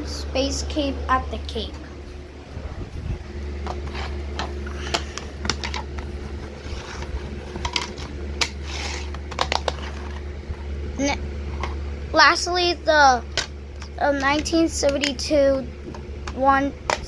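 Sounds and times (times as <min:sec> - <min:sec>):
steady low hum: 0:00.0 - 0:17.0
plastic cases clicking and tapping: 0:09.3 - 0:09.8.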